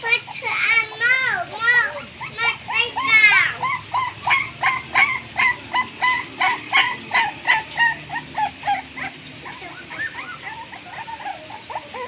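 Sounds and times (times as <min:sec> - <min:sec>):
puppy yelping and whimpering: 0:00.2 - 0:12.0.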